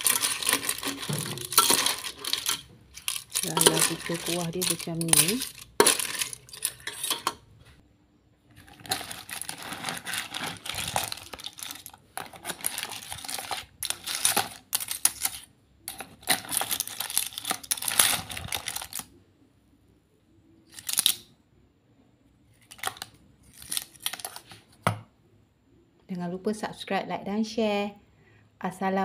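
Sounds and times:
clams clattering against metal ladle: 0.0s - 7.5s, 8.6s - 19.0s.

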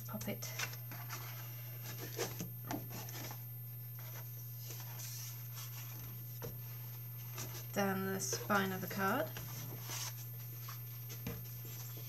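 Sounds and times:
steady low hum: 0.0s - 12.0s
card rubbing and rustling: 9.3s - 12.0s.

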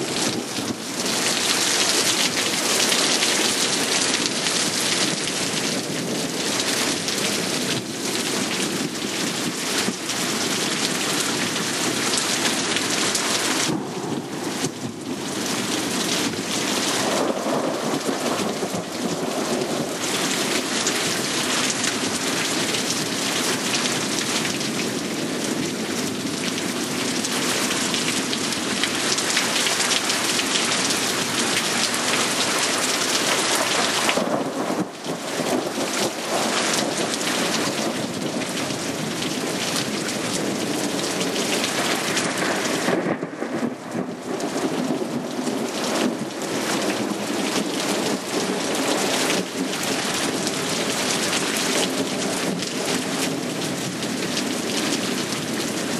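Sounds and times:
steady rain falling: 0.0s - 55.9s
thunder rumbling: 12.9s - 22.4s, 33.4s - 50.5s.

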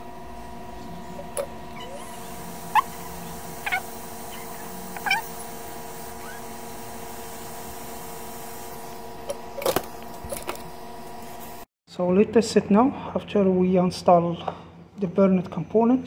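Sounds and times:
multi-tone hum: 0.0s - 11.6s
hot-air station hissing: 0.0s - 11.7s
squeaky calls falling in pitch: 1.7s - 5.3s, 6.2s - 6.4s.

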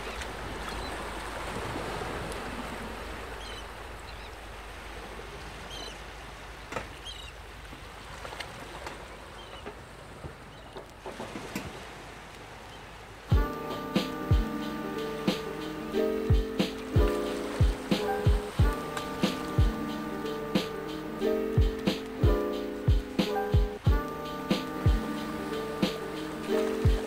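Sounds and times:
steady rushing noise: 13.3s - 27.0s.

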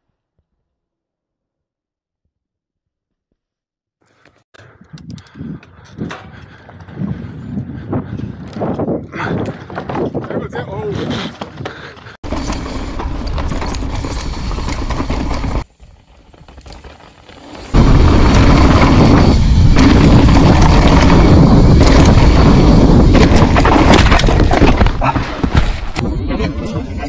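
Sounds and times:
bike tyres on dirt: 5.2s - 27.0s
wind rushing: 17.8s - 25.0s.

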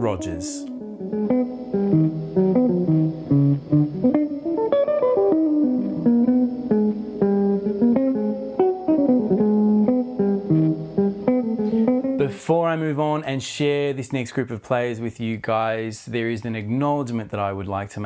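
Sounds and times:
electric guitar jazz line: 0.0s - 13.2s.

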